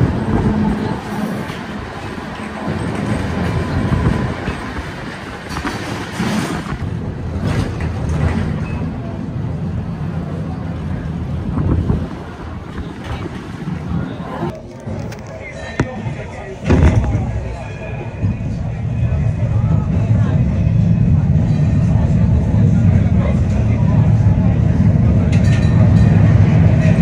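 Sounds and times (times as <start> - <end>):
rail clacks: 0.0 - 9.2
tram rumbling on rails: 0.0 - 27.0.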